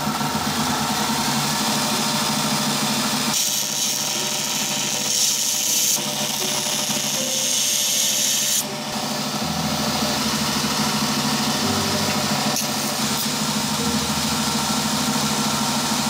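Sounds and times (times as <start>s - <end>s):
belt grinder motor hum: 0.0s - 16.0s.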